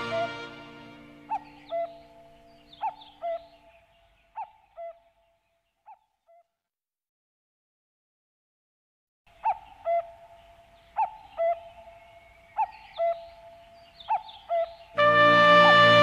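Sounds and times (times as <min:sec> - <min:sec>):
bird two-note hooting call: 0:00.0 - 0:03.8.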